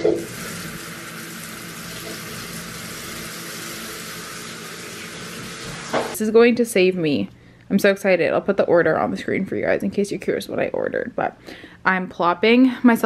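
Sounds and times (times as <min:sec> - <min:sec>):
shower water spraying: 0:00.1 - 0:06.2.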